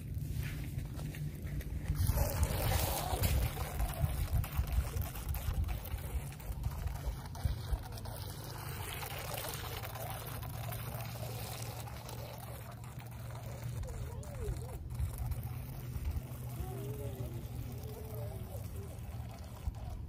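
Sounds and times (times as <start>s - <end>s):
low rumble: 0.0s - 9.2s
electric toy jet ski splashing water: 1.8s - 20.0s.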